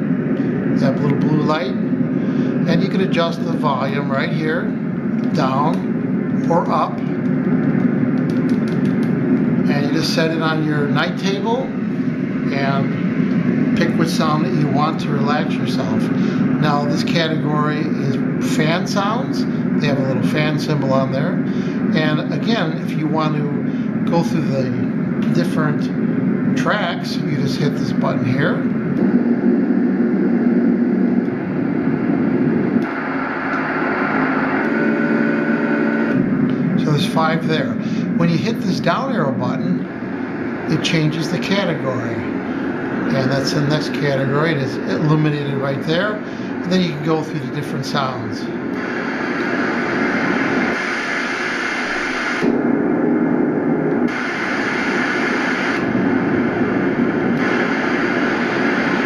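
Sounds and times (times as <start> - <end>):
faint steady hum: 0.0 - 59.0
recorded fan noise from small speaker: 0.0 - 59.0
sound machine hiss: 32.7 - 59.0.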